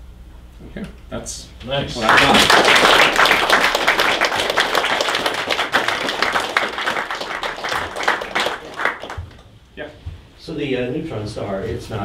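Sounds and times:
audience applauding: 0:01.9 - 0:09.4.

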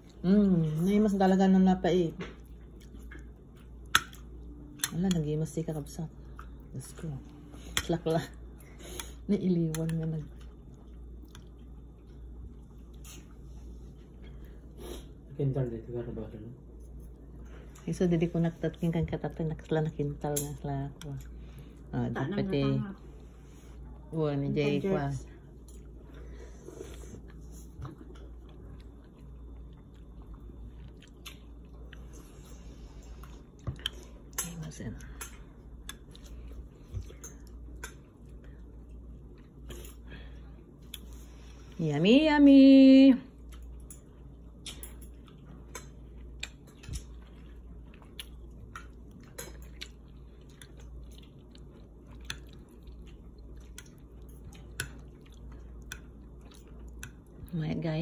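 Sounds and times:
low steady hum: 0:00.0 - 0:58.0
person chewing food: 0:02.3 - 0:05.2, 0:06.1 - 0:15.3, 0:25.5 - 0:41.7, 0:43.4 - 0:57.5.

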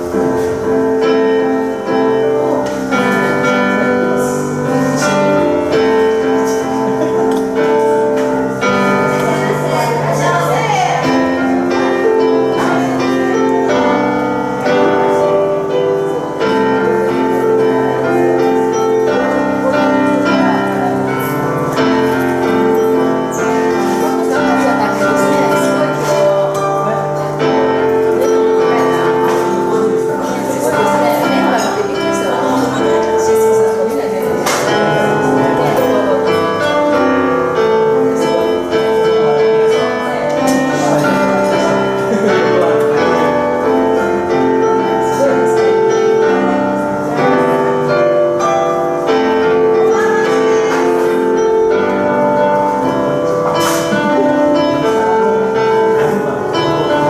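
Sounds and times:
grand piano chords: 0:00.0 - 0:57.0.

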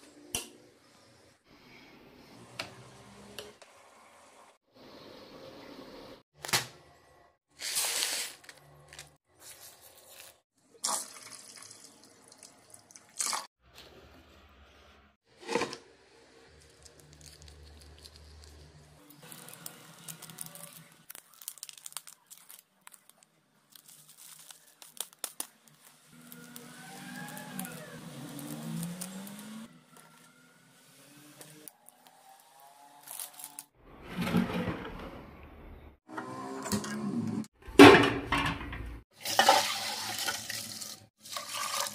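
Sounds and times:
water pouring into steel bowl: 0:10.8 - 0:13.5, 0:39.2 - 0:41.9.

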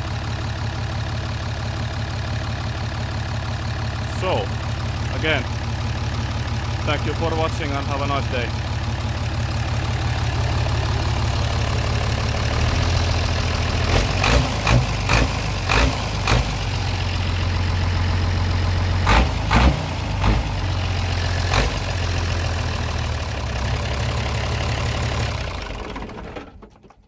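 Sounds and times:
diesel truck engine idling: 0:00.0 - 0:26.6.

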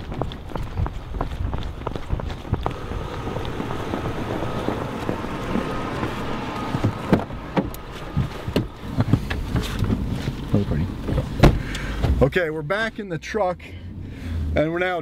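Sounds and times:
wind noise on microphone: 0:00.0 - 0:11.7
pickup truck engine running: 0:00.0 - 0:12.3
car door knocks and clunks: 0:02.7 - 0:12.3.

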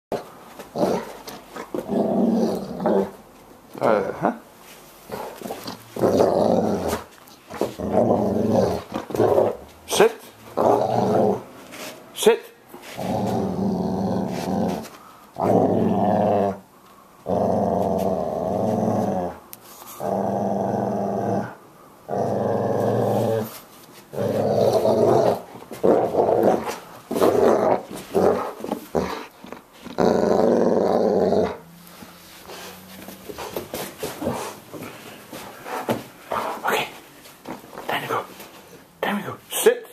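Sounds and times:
dog growling: 0:00.1 - 0:03.2, 0:05.1 - 0:11.6, 0:12.9 - 0:19.4, 0:20.0 - 0:31.7.

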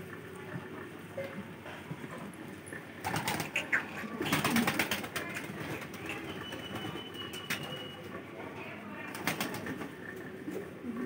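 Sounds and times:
pigeons cooing: 0:02.9 - 0:06.6, 0:09.5 - 0:11.0
wings flapping: 0:03.0 - 0:07.8, 0:09.1 - 0:09.9.

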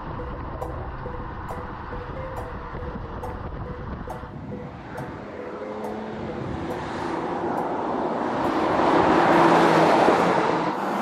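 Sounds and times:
car engine driving past: 0:04.3 - 0:11.0.

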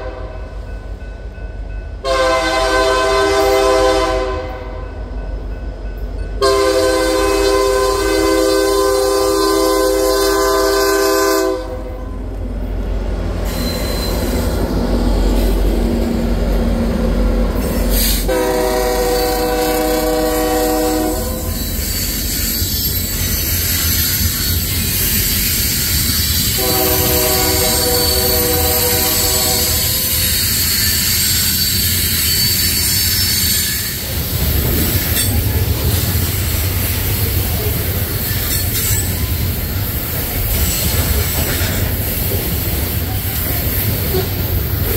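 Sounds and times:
locomotive air horn blasts: 0:00.0 - 0:00.5, 0:02.0 - 0:04.9, 0:06.4 - 0:12.2, 0:18.0 - 0:21.6, 0:26.5 - 0:30.2
locomotive rumble: 0:00.0 - 0:44.9
high wheel squeal: 0:13.4 - 0:16.2, 0:17.6 - 0:44.7
freight cars rolling: 0:19.0 - 0:44.9.

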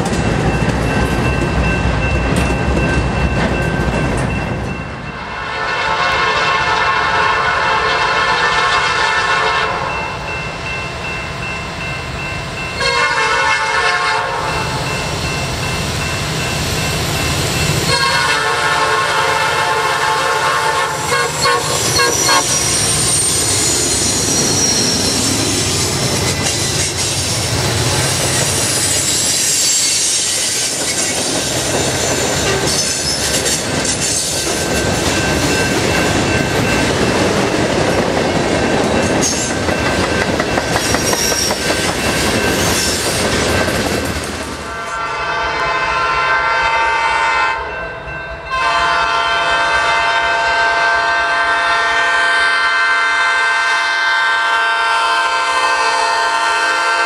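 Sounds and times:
train wheels clacking: 0:00.0 - 0:04.9, 0:20.6 - 0:45.0
locomotive air horn blasts: 0:05.4 - 0:09.9, 0:12.8 - 0:14.7, 0:17.9 - 0:22.9, 0:44.7 - 0:47.7, 0:48.5 - 0:57.0
wheels squealing: 0:21.3 - 0:34.4, 0:40.8 - 0:43.1.

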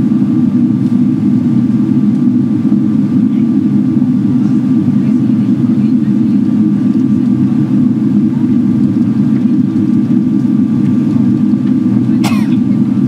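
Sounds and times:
airflow and engine rumble: 0:00.0 - 0:13.0.

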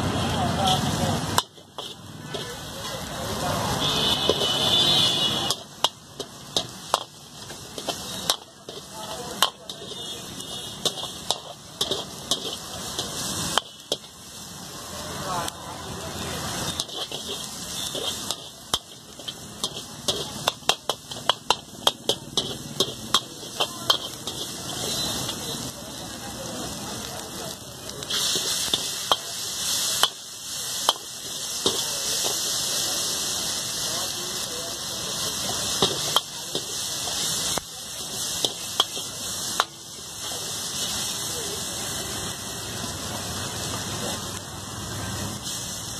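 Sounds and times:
vegetables sizzling: 0:00.0 - 0:45.9
metal ladle clanking on wok: 0:07.7 - 0:10.0, 0:10.8 - 0:14.1, 0:16.8 - 0:25.4.

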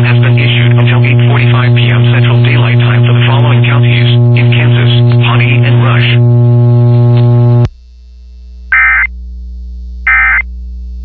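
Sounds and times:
loud low buzz: 0:00.0 - 0:11.0
shrill warbling data tone: 0:08.7 - 0:09.1, 0:10.1 - 0:10.4.

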